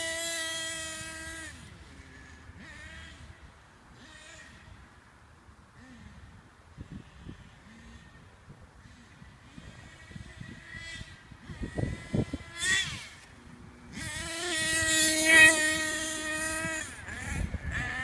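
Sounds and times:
toy truck motor whine: 0:00.0 - 0:03.4, 0:09.5 - 0:18.0.

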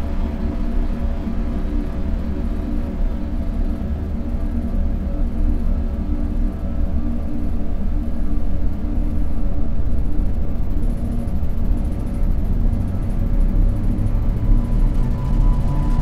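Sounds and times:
vehicle engines rumbling: 0:12.8 - 0:16.0.

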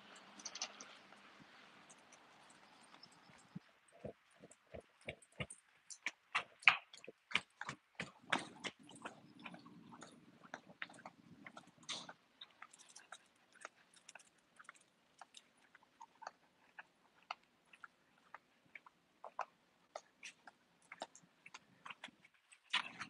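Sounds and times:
dog claws clicking on brick paving: 0:01.9 - 0:23.0.

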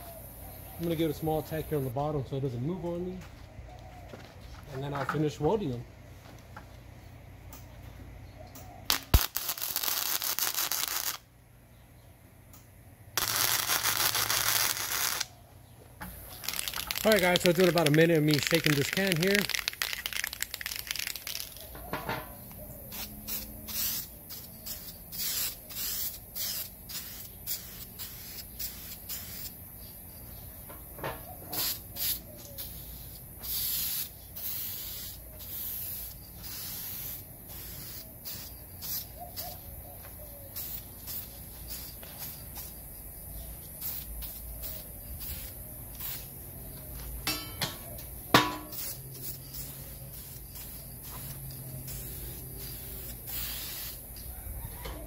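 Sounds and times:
spray can hissing: 0:13.2 - 0:15.3, 0:16.0 - 0:21.7, 0:22.4 - 0:29.9, 0:31.5 - 0:39.6, 0:40.5 - 0:54.3.

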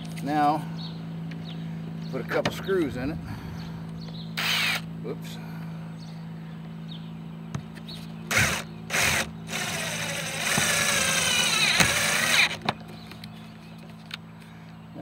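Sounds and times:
cordless drill driving screw: 0:04.4 - 0:04.8, 0:08.3 - 0:12.6.

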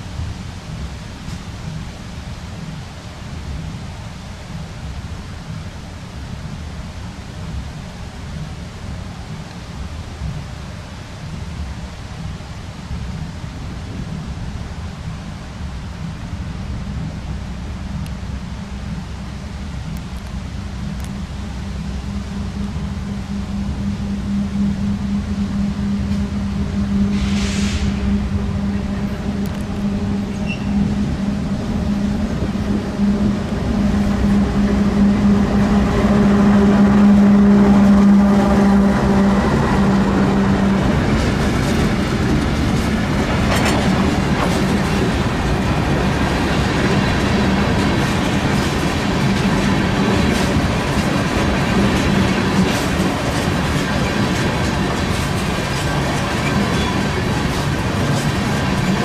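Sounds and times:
diesel locomotive hum: 0:00.0 - 0:59.0
train wheels rolling on rails: 0:00.0 - 0:59.0
rail clicks: 0:16.9 - 0:59.0.

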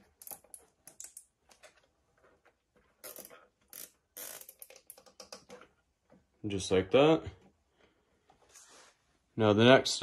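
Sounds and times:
zip tie rasping pulls: 0:03.0 - 0:05.1
zip tie ratcheting clicks: 0:03.0 - 0:05.5.

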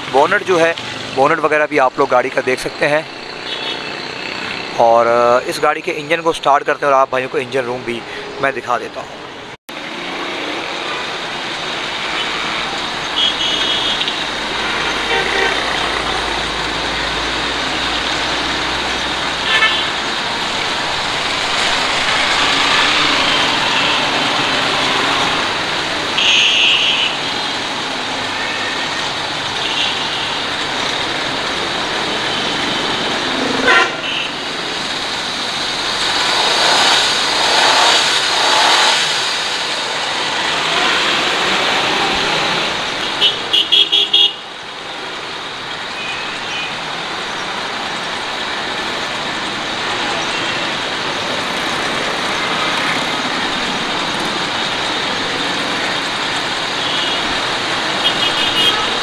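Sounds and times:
car horn toots: 0:13.2 - 0:14.2, 0:26.2 - 0:27.2, 0:33.6 - 0:34.4, 0:58.0 - 0:59.0.

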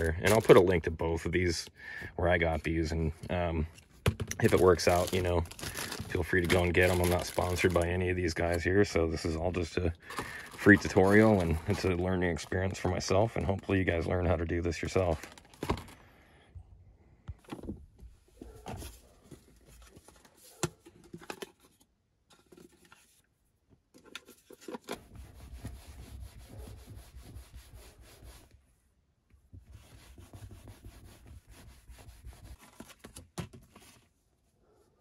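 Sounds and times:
paper towel rubbing on leather seat: 0:25.1 - 0:28.5, 0:29.8 - 0:32.6.

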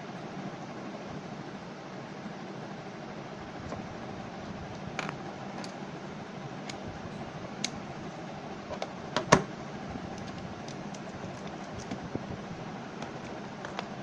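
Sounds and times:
steady background hum: 0:00.0 - 0:14.0.

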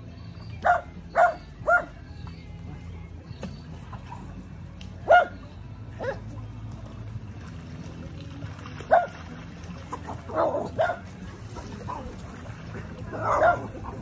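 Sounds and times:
dog barking: 0:00.6 - 0:01.9, 0:05.1 - 0:05.4, 0:06.0 - 0:06.2, 0:08.9 - 0:09.1, 0:10.4 - 0:11.1, 0:13.2 - 0:14.0.

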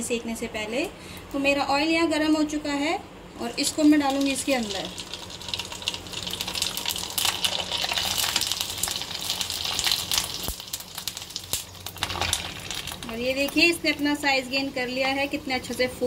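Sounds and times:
crackling sizzle of deep-frying: 0:03.4 - 0:16.0.

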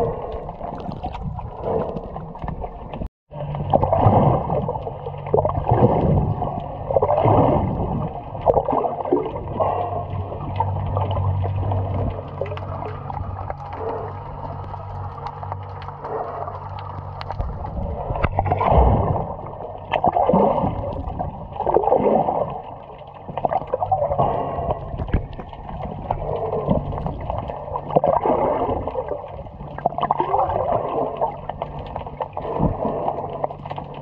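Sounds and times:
water sloshing and gurgling: 0:00.0 - 0:34.0.

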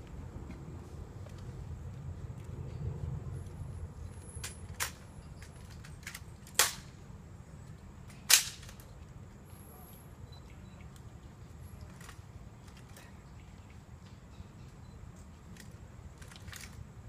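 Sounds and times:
loud rifle cracks: 0:06.6 - 0:06.9, 0:08.3 - 0:08.8.

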